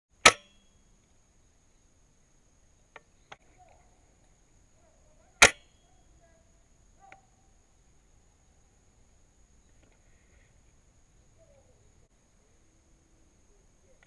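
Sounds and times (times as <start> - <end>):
airsoft rifle cracks: 0.2 - 0.6, 5.4 - 5.7.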